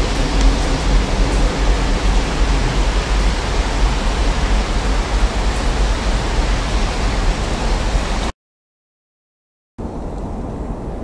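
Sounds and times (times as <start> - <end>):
diesel locomotives rumbling: 0.0 - 8.3
rain hissing: 0.0 - 8.3.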